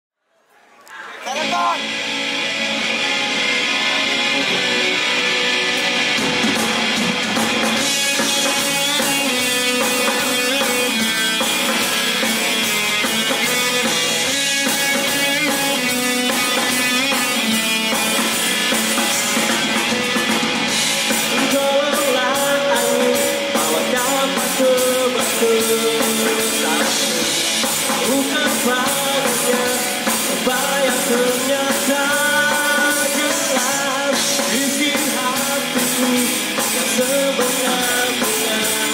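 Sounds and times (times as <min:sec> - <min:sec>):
electric guitar: 0:00.9 - 0:38.9
bass guitar: 0:01.1 - 0:38.9
drum kit: 0:01.4 - 0:38.9
man singing: 0:07.8 - 0:12.4, 0:21.1 - 0:38.9.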